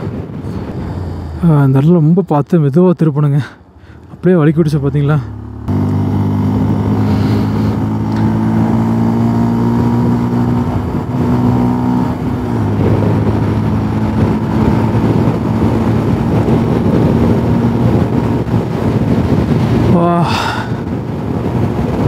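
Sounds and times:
wind noise on microphone: 0.0 - 2.4, 5.3 - 22.0
motorcycle engine running: 5.0 - 20.1.

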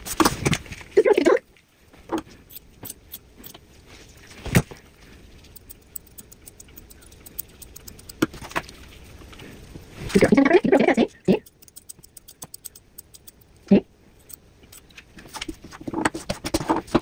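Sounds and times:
scissors snipping fur: 2.5 - 3.6, 5.5 - 8.6, 11.3 - 13.6.

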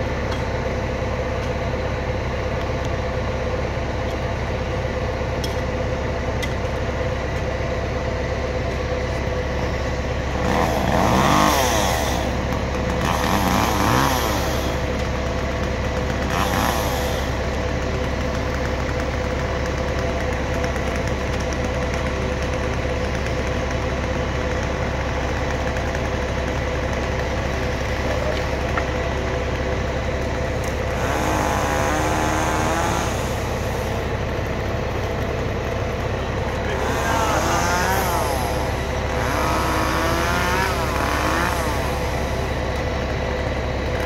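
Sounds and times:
engine idling: 0.0 - 44.0
chainsaw revving: 10.2 - 43.0.

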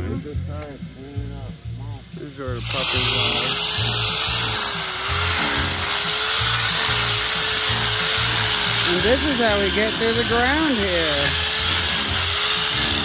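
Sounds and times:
background music with beat: 0.0 - 2.8
electric drill motor whine: 2.6 - 13.0.

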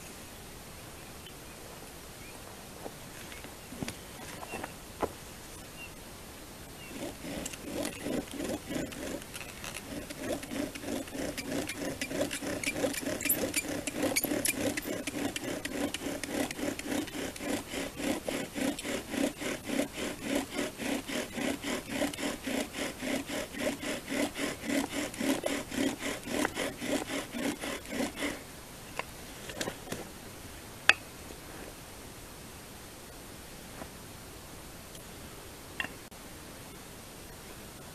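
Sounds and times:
bow drill rubbing wood on wood: 6.9 - 28.4.

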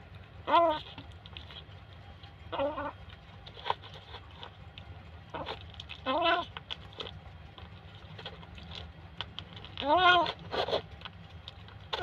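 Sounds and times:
kitten eating dry kibble: 0.0 - 12.0
kitten meowing: 5.4 - 6.5, 9.8 - 10.4.

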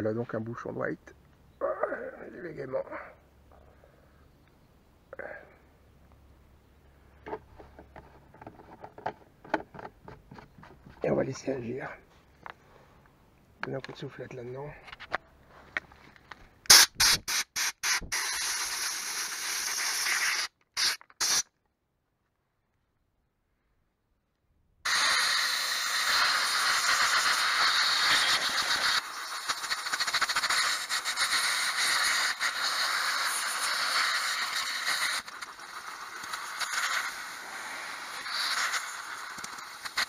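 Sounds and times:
compressed air blow gun blasting: 16.7 - 21.4, 24.9 - 40.0.

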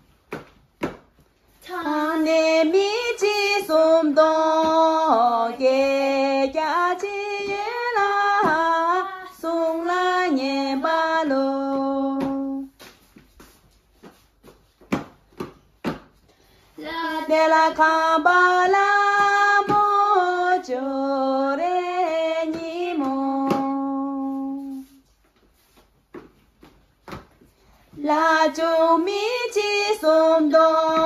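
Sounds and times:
girls singing in unison: 1.6 - 12.7, 16.8 - 24.8, 27.9 - 31.0.

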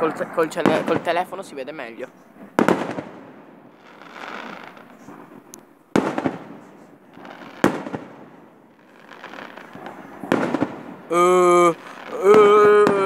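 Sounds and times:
firework shells bursting: 2.0 - 11.1, 11.7 - 13.0.

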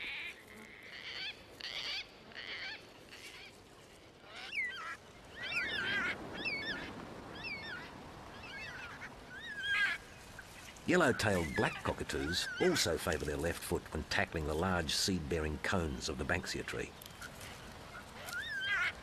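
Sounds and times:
cockatoos giving raspy calls: 4.2 - 13.3, 17.2 - 19.0
small birds warbling songs: 4.2 - 13.4, 16.3 - 19.0.

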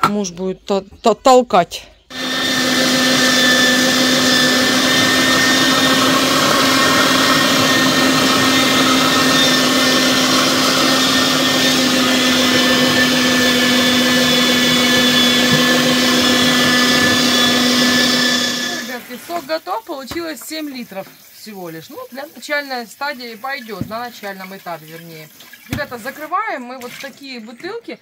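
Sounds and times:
electric meat grinder motor hum: 2.1 - 19.1.

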